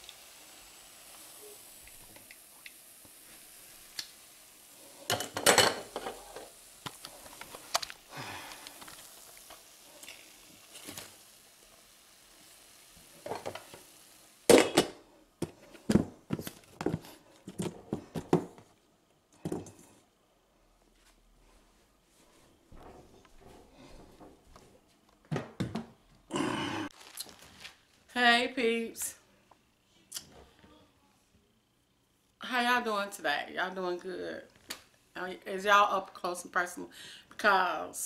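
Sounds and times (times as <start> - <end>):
hot oil sizzling in a pan: 0.0 - 15.1
pans and dishes clattering: 5.0 - 6.5, 13.2 - 13.8, 14.5 - 15.0.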